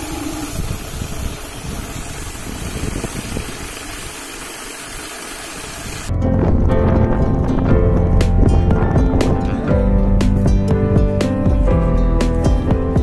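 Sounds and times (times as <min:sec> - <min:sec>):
spray pump motor running: 0:00.0 - 0:06.1
music: 0:06.1 - 0:13.0.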